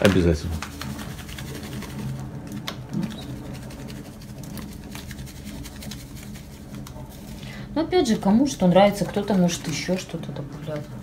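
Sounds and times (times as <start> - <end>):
low mechanical hum: 0.0 - 11.0
flakes shaken from plastic bag: 3.5 - 7.4.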